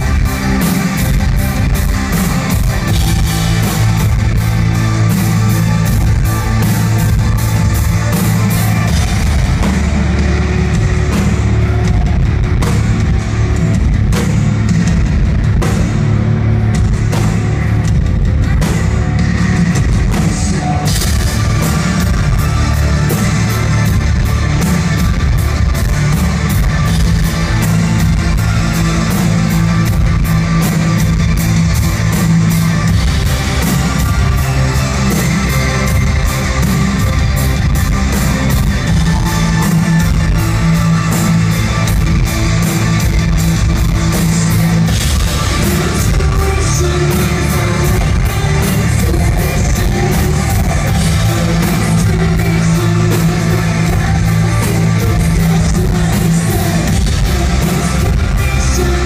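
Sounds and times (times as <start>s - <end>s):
distorted electric guitar: 0.0s - 59.0s
drum kit beat: 0.0s - 59.0s
live rock band playing: 0.0s - 59.0s.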